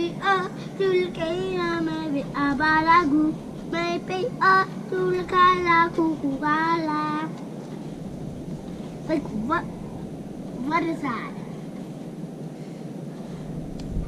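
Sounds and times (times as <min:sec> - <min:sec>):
child singing: 0:00.0 - 0:07.4.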